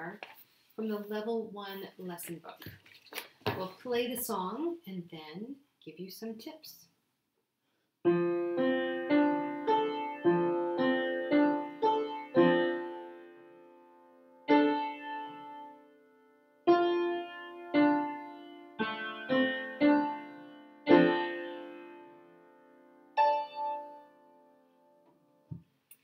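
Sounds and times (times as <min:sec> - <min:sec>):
slow piano piece: 0:08.1 - 0:25.3.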